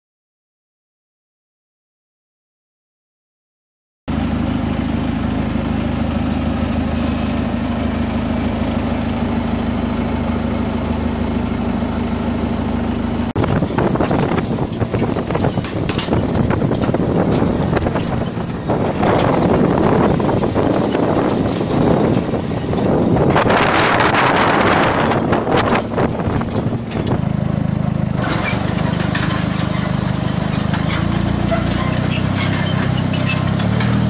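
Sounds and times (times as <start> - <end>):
tractor engine running: 4.1 - 34.0
wind on microphone: 13.4 - 27.2.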